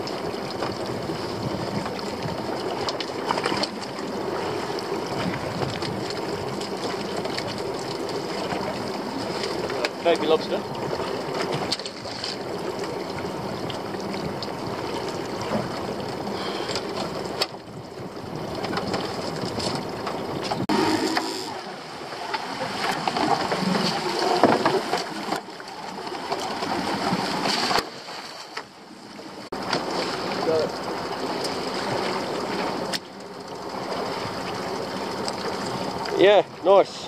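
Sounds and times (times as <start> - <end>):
boat engine running: 0.0 - 27.5
water splashing against boat hull: 0.0 - 37.0.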